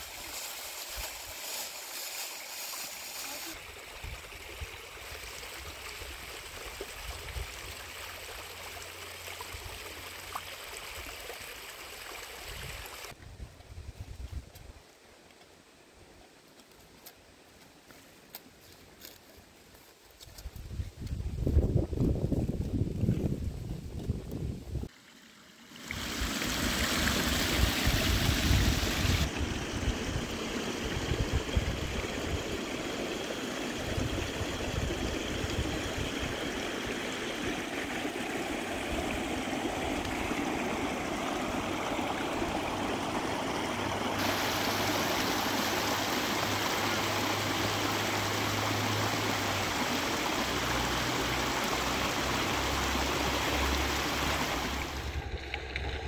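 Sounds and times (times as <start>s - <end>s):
river water rushing: 25.7s - 55.9s.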